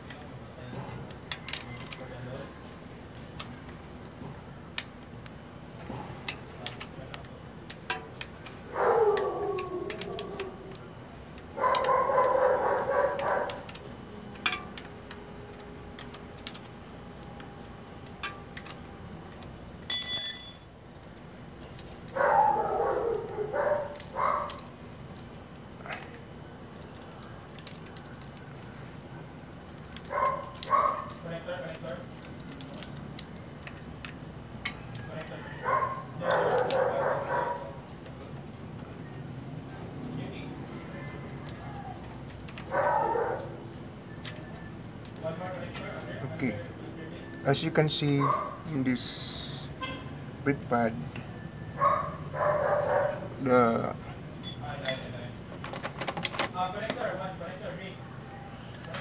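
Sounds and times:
dog barking and howling: 8.7s - 10.8s, 11.5s - 13.7s, 22.1s - 24.7s, 30.1s - 31.1s, 35.5s - 37.8s, 42.7s - 43.6s, 48.2s - 48.7s, 51.8s - 53.4s.

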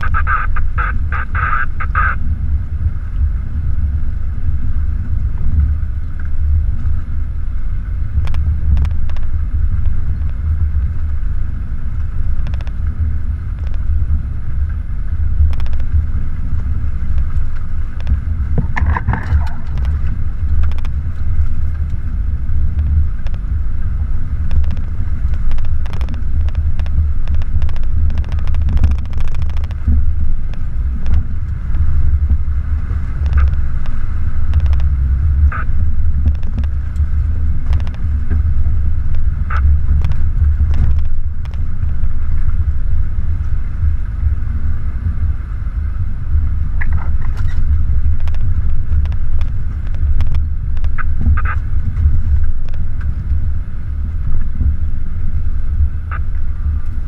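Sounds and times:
engine rumble: 0.0s - 57.0s
suspension clicks and knocks: 16.6s - 22.0s, 24.5s - 32.4s.

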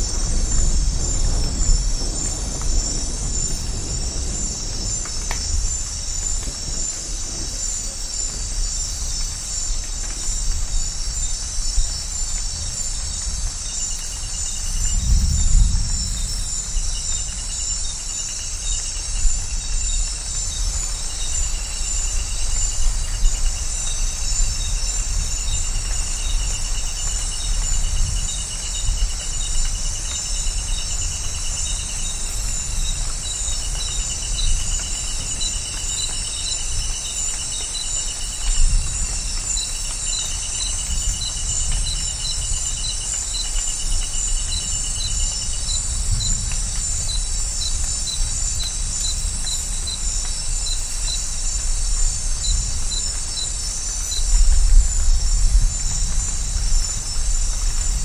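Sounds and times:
distant thunder rumble: 0.0s - 9.9s, 14.7s - 17.6s
insects chorus: 0.0s - 58.0s.

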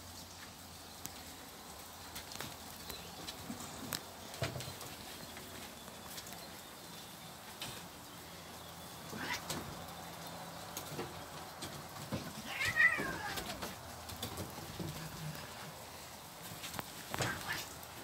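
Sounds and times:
paws tapping on wooden decking: 2.0s - 6.6s, 9.1s - 18.0s
cat meowing: 12.4s - 13.7s, 17.2s - 17.8s.

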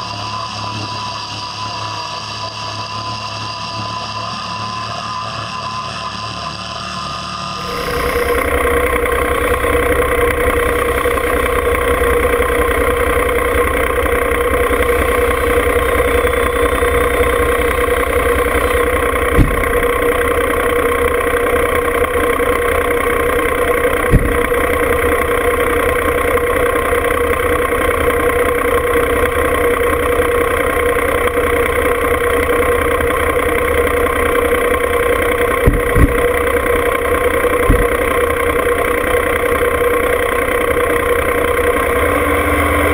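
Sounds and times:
diesel tractor engine idling: 7.6s - 42.9s
sharp engine knocks: 7.7s - 21.0s, 22.2s - 26.7s, 34.6s - 39.6s.

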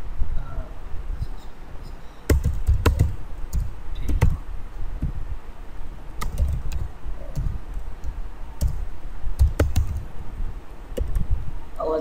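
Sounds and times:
computer keyboard keystrokes: 2.3s - 4.4s, 6.2s - 7.5s, 8.6s - 8.8s, 9.4s - 10.0s.

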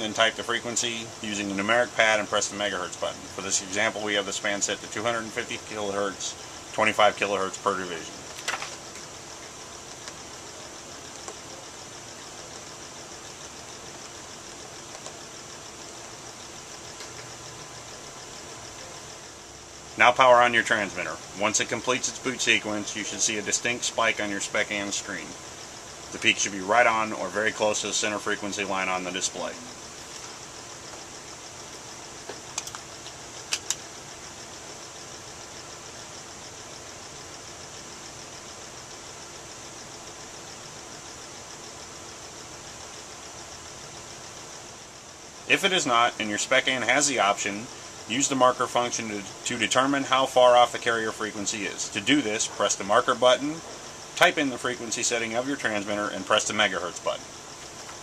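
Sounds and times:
background hum and hiss: 0.0s - 58.0s
faint high whine: 0.0s - 58.0s
sharp clicks: 32.3s - 33.9s.

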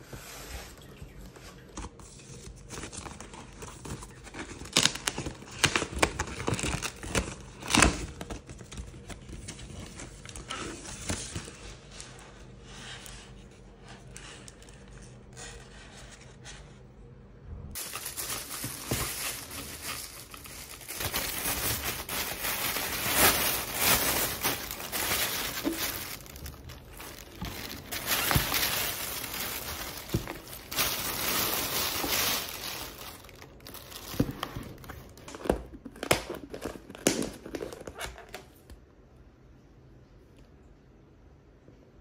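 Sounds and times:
plastic bag rustling: 17.7s - 35.3s.

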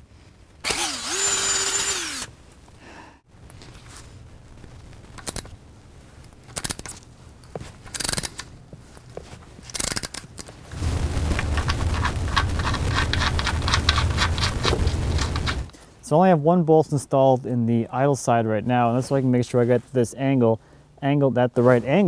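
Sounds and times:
drill running with low hum: 0.6s - 2.3s
scrapes and clicks: 11.3s - 15.8s.

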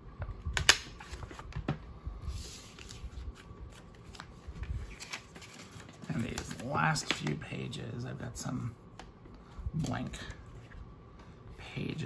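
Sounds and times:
paper rustling and shuffling: 0.6s - 7.4s.

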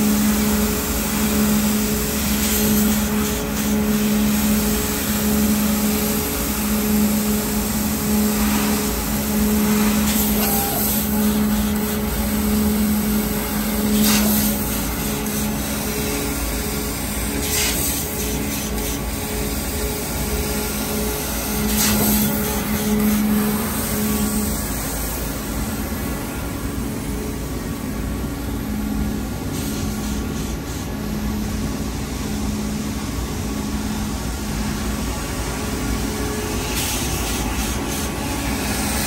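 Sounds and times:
machine humming: 0.0s - 39.0s.

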